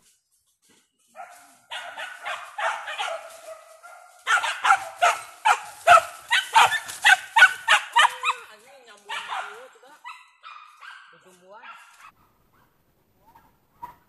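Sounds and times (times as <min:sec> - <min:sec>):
dogs barking loudly: 0:01.2 - 0:08.5, 0:09.1 - 0:12.7
dogs yelping: 0:01.2 - 0:08.5, 0:09.1 - 0:14.0.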